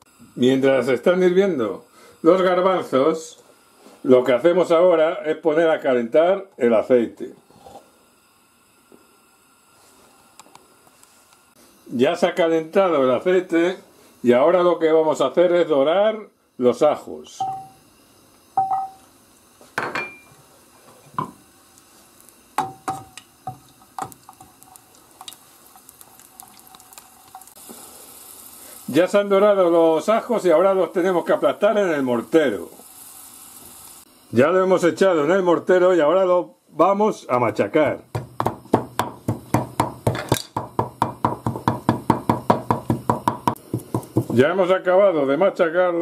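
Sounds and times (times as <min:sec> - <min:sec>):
garlic sizzling in oil: 0:07.4 - 0:46.0
wooden spoon knocking on pan: 0:22.6 - 0:24.5, 0:37.8 - 0:44.4
wooden pestle pounding in mortar: 0:38.1 - 0:44.4.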